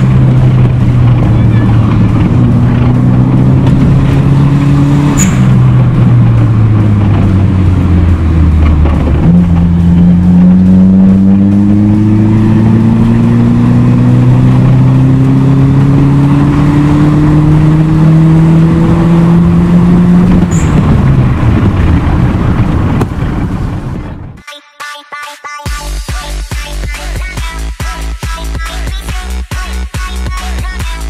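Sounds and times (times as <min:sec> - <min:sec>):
car engine accelerating: 0:00.0 - 0:24.4.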